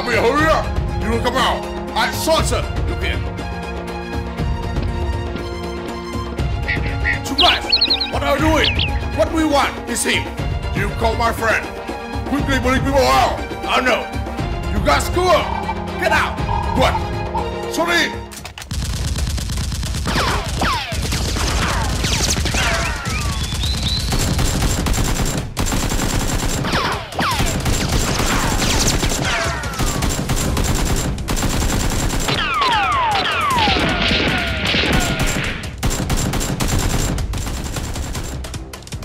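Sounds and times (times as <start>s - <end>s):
falling whistles: 7.4s - 9.2s, 22.7s - 24.3s
automatic gunfire bursts: 18.7s - 34.0s, 34.8s - 38.7s.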